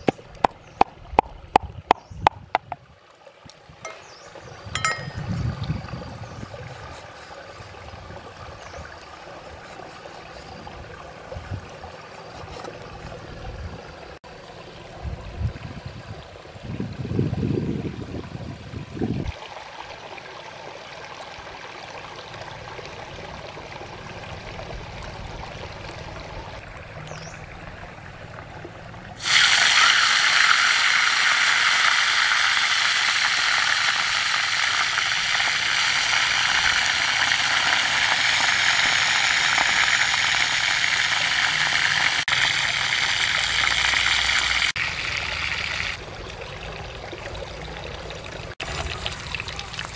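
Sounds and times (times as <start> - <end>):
stream running: 0.0 - 49.9
food sizzling in hot pan: 29.2 - 44.8.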